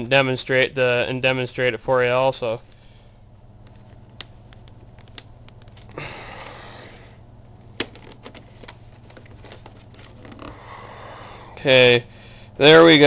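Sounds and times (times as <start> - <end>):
plastic packaging clicks and crackles: 3.6 - 6.6, 7.5 - 10.5
plastic rustling: 7.7 - 10.6.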